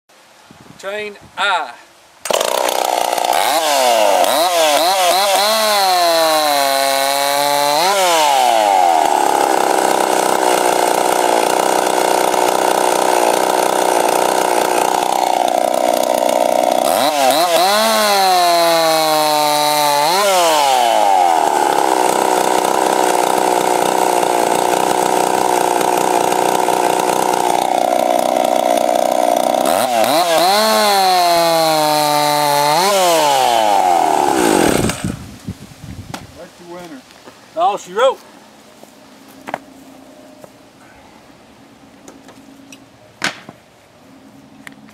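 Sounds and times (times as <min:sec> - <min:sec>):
chainsaw cutting wood: 0:02.2 - 0:35.4.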